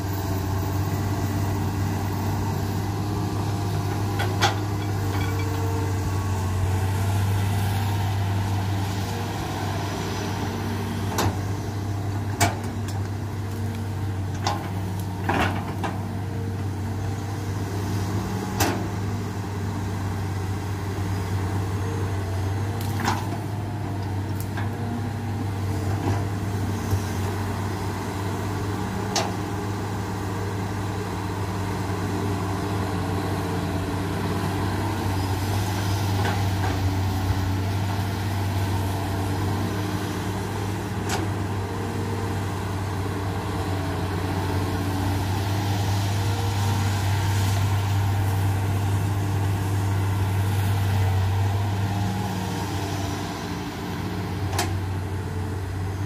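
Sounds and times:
excavator diesel engine humming: 0.0s - 56.0s.

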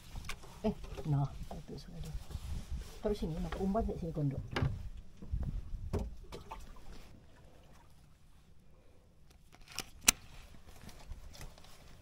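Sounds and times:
sharp knocks on a boat: 5.9s - 6.6s.

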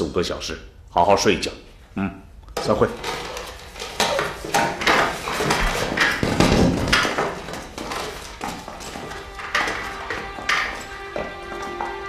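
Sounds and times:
papers and cups being gathered: 2.5s - 12.0s
chairs shifting: 2.6s - 12.0s
irregular knocks and thuds: 2.6s - 12.0s
rustling: 2.6s - 12.0s.

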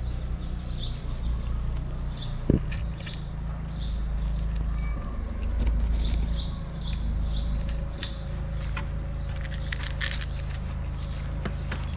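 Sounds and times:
small birds chirping: 0.0s - 11.9s
cats crunching dry kibble: 4.0s - 11.9s.

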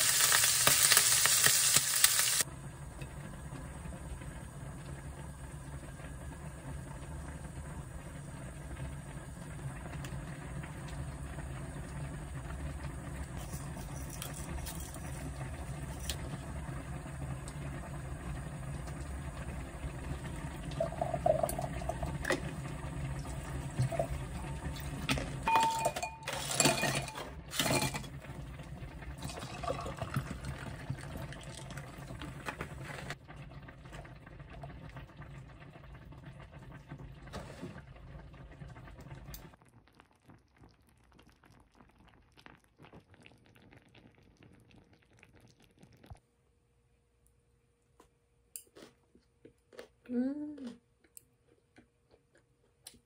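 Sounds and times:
liquid pouring into a glass: 20.6s - 22.5s, 29.2s - 32.2s
knocks and clinks: 25.5s - 28.0s.

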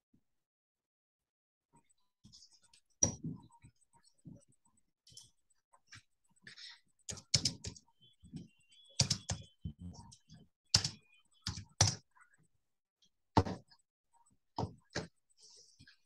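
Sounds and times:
typing on computer keyboard: 7.0s - 7.9s, 8.8s - 12.1s.

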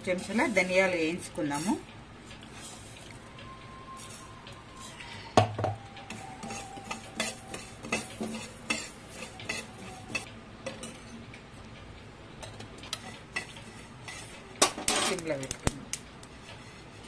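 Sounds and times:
spoon scraping seeds in pan: 0.0s - 3.2s, 4.0s - 5.1s, 6.1s - 11.1s, 12.9s - 15.5s, 16.2s - 17.0s.

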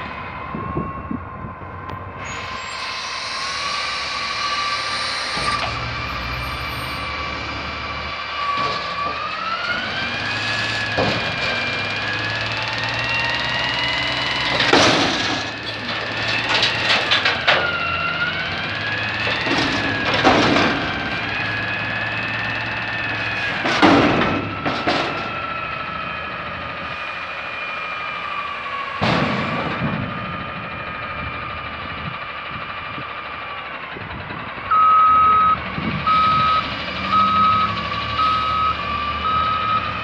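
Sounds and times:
truck engine revving: 0.0s - 40.0s
hydraulic whine: 1.9s - 26.1s
loud bangs and clanks: 13.8s - 22.4s, 23.0s - 25.5s, 28.9s - 30.8s.

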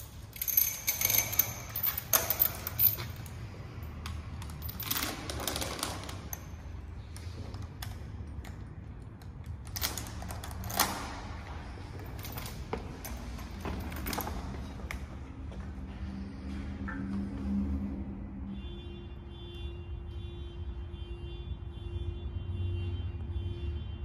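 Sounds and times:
metal chain rattling and clinking: 0.0s - 6.8s, 11.8s - 15.0s.

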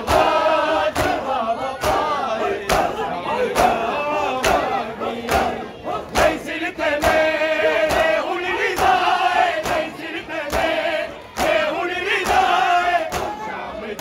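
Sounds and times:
men chanting rhythmically: 0.0s - 14.0s
hands slapping bare chests: 0.9s - 1.2s, 2.7s - 2.9s, 9.6s - 9.9s.

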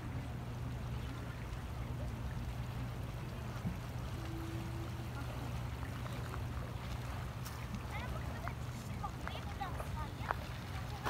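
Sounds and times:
faint steady tone: 0.0s - 8.9s
river current rushing: 3.8s - 9.1s.

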